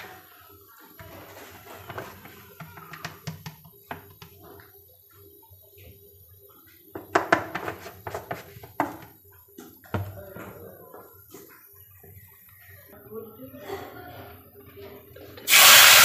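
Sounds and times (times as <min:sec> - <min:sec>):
plastic jar clicking and knocking: 0:01.9 - 0:04.4.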